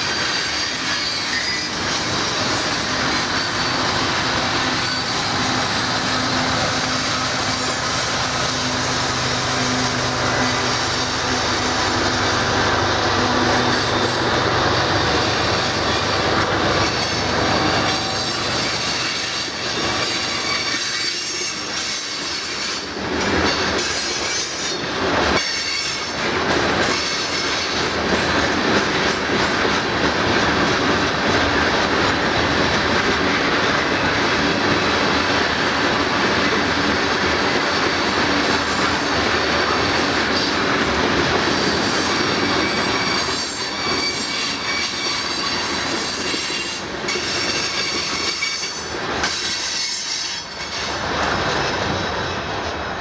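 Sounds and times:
flange squeal: 0.0 - 26.1, 41.4 - 51.0
diesel locomotive drone: 0.0 - 53.0
train wheels rumbling on rail: 0.0 - 53.0.

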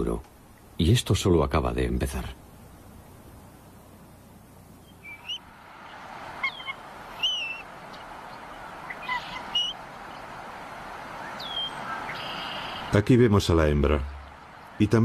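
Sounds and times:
background hiss: 0.0 - 15.0
eagle calling in high chirps: 4.8 - 13.0.

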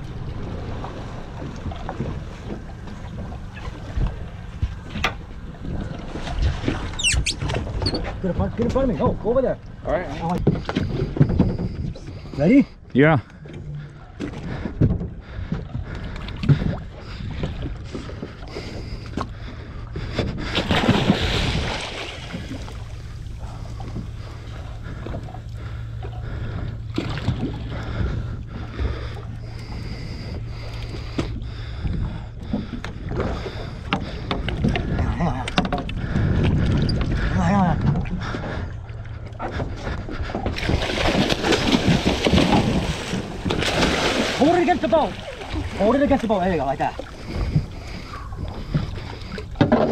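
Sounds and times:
boat engine idling: 0.0 - 49.9
fish thrashing and splashing: 20.5 - 25.3, 40.4 - 49.9.

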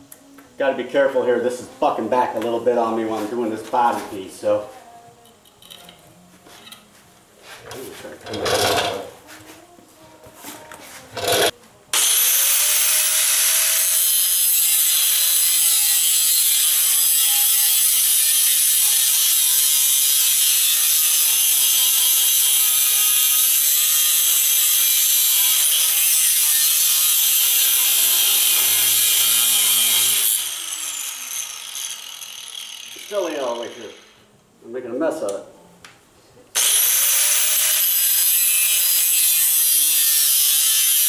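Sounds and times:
angle grinder cutting steel: 8.2 - 9.1, 11.2 - 34.2, 36.6 - 41.0.

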